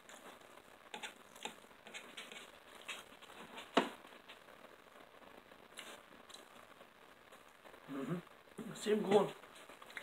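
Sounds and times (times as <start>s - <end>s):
fork scraping on a plate: 1.0s - 3.0s.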